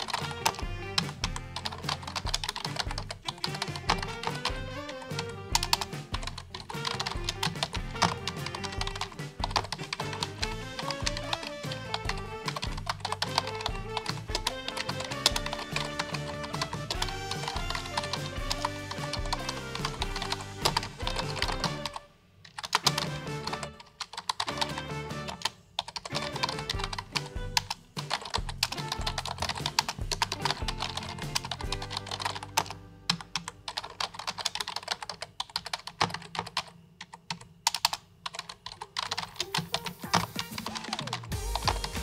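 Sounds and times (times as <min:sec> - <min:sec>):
background music: 0:00.0 - 0:34.1, 0:39.0 - 0:42.0
typing on computer keyboard: 0:00.0 - 0:42.0.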